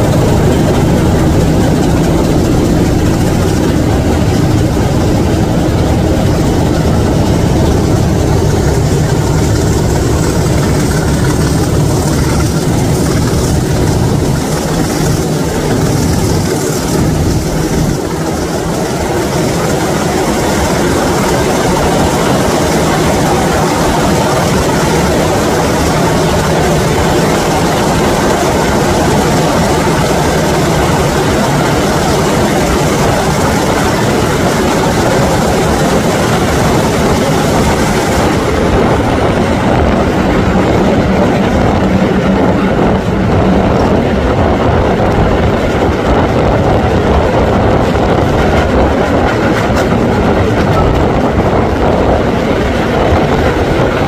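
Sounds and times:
diesel engines: 0.0 - 54.0
train wheels on rails: 0.0 - 54.0.

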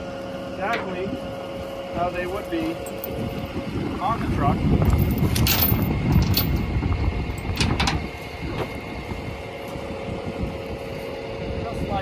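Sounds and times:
steady low rumble: 0.0 - 12.0
chain clinking on steel deck: 4.9 - 6.6.

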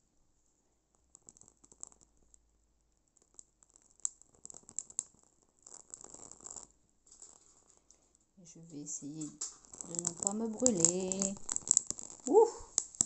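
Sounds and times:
leaf crackling as it burns: 3.1 - 13.0.

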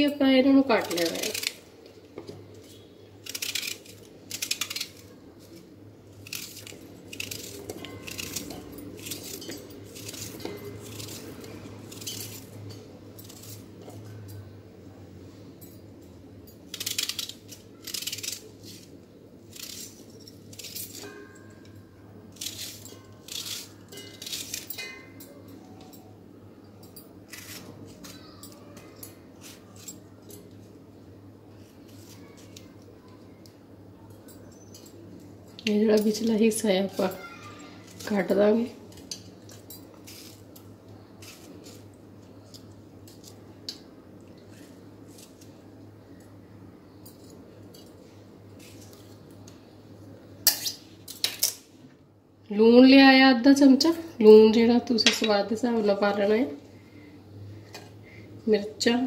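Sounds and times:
knife clinking against steel jar: 6.3 - 11.2, 22.4 - 26.1.

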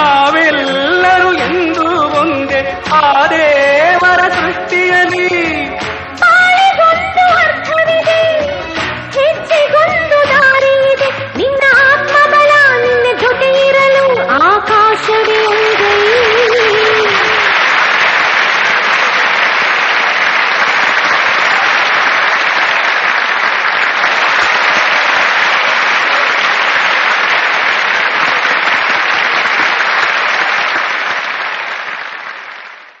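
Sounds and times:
crowd applause: 15.2 - 33.0.

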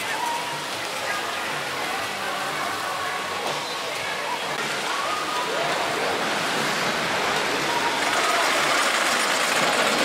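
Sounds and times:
faint voices: 0.0 - 10.0
water rushing down slides: 0.1 - 10.0.

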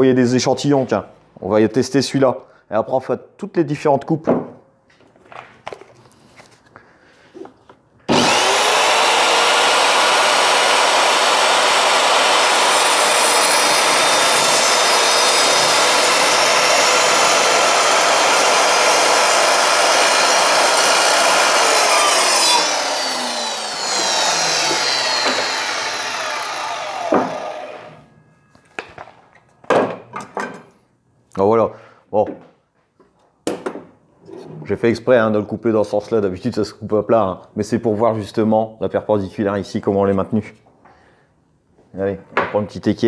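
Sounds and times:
mitre saw cutting wood: 8.1 - 28.0
saw blade spinning down whine: 8.1 - 28.0.

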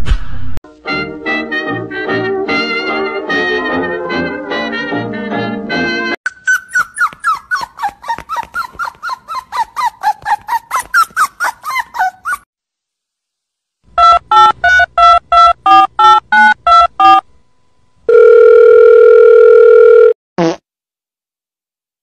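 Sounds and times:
quick high yips: 6.3 - 12.4
steady phone line tone: 18.1 - 20.2.

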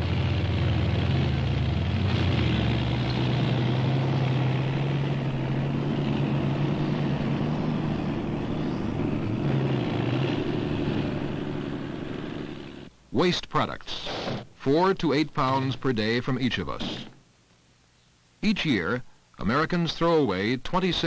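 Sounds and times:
heavy engines running: 0.0 - 12.9.

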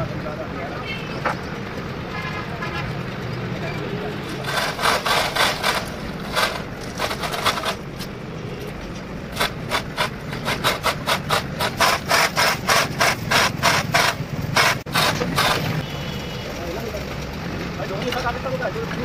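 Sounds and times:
chain rattling through hoist: 4.4 - 7.8.

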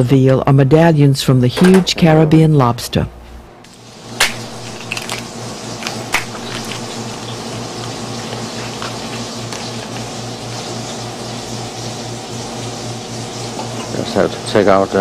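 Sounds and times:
steady background hum: 0.0 - 15.0
lobster shell cracking: 4.2 - 8.0.

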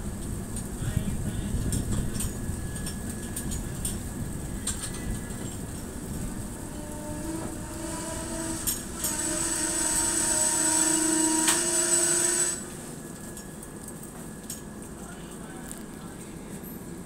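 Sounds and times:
train rumble: 0.0 - 17.0
train wheels squealing: 2.2 - 12.7.

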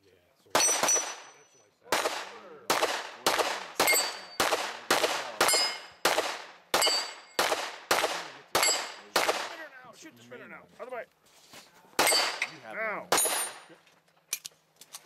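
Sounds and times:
carbine gunshots: 0.5 - 9.7, 12.0 - 13.7
steel targets ringing: 0.6 - 1.7, 3.8 - 4.5, 5.4 - 6.0, 6.8 - 7.4, 8.6 - 9.2.

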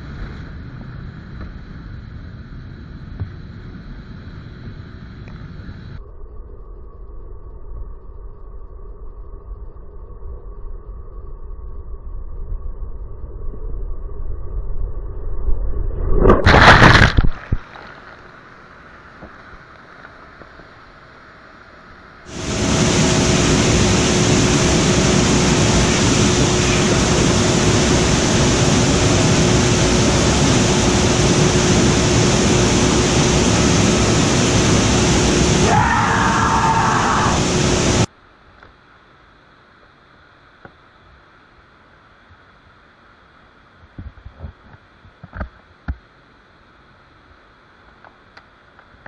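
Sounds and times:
loud splash: 16.3 - 18.9
rushing water: 16.5 - 38.1
waterfall rushing close up: 22.3 - 38.1.

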